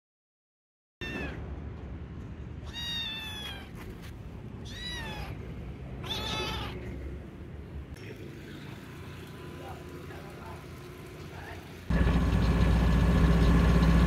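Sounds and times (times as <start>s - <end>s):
cat meowing: 1.0s - 1.5s, 2.6s - 3.9s, 4.6s - 7.0s.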